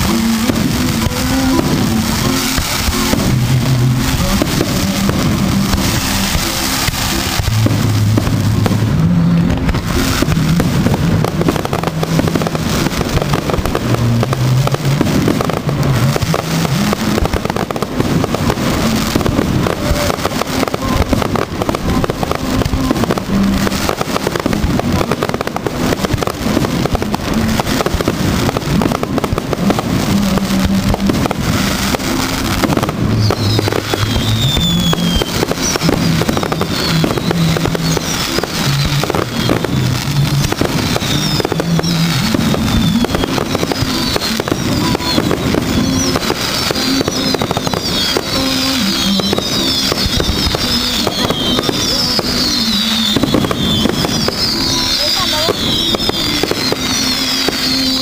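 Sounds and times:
fireworks bangs and crackling: 0.0 - 58.0
music playing: 0.0 - 58.0
falling firework whistles: 30.6 - 58.0.

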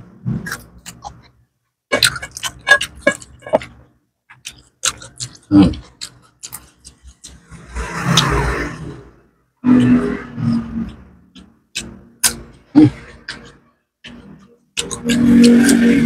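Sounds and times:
chewing with mouth clicks: 1.9 - 7.5, 10.8 - 15.8.

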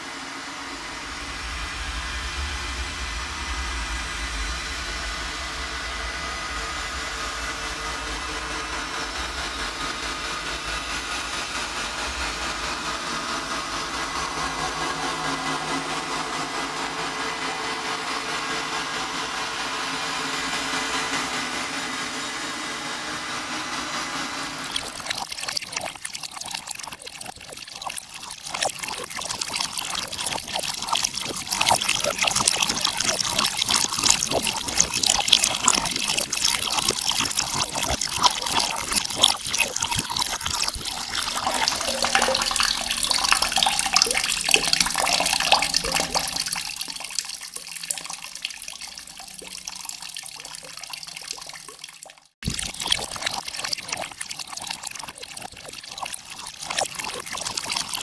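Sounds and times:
water splashing and trickling: 24.6 - 58.0.

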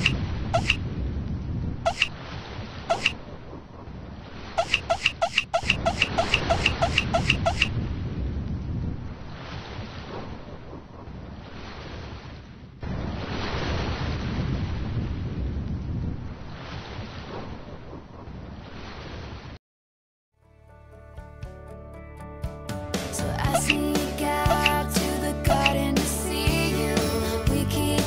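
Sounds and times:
music: 20.4 - 28.0.

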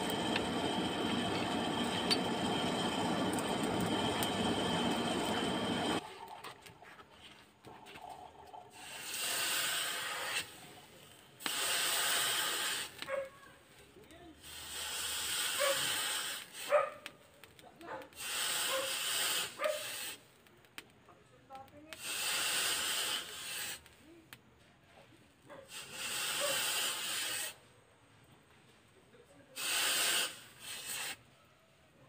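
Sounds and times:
hot steel hissing in water: 0.0 - 6.3, 8.6 - 13.1, 14.4 - 17.0, 18.0 - 20.3, 21.9 - 24.0, 25.6 - 27.7, 29.5 - 31.3.

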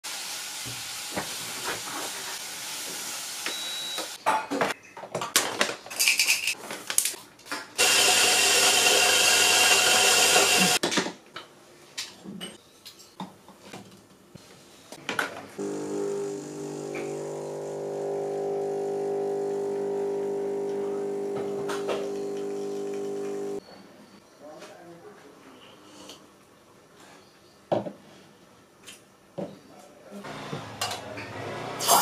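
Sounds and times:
electric coffee grinder running: 7.8 - 10.8, 15.6 - 23.6.

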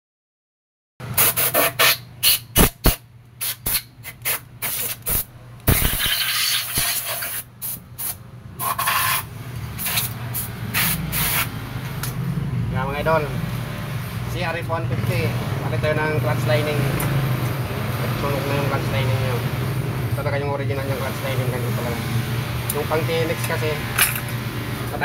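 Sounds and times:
metal parts clicking and knocking: 23.4 - 24.4.

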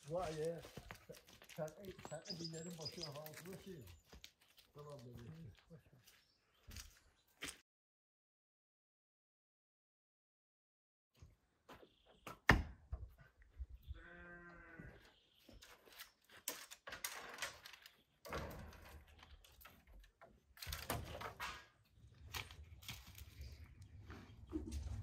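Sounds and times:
brushwood rustling and scraping: 0.0 - 7.0, 15.2 - 25.0
animal bleat: 13.9 - 15.1.

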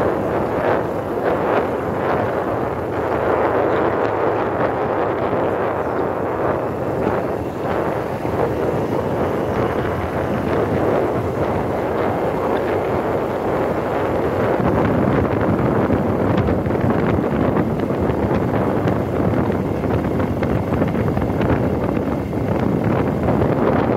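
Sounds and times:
wind buffeting microphone: 0.0 - 23.9.

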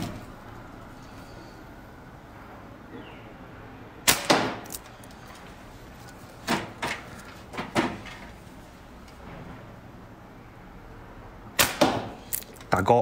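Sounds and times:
slingshot shot cracks: 4.0 - 4.7, 11.6 - 12.4.

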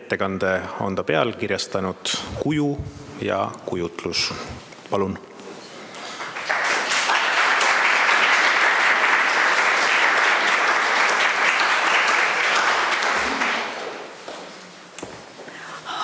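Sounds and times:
audience applauding: 6.1 - 14.1.

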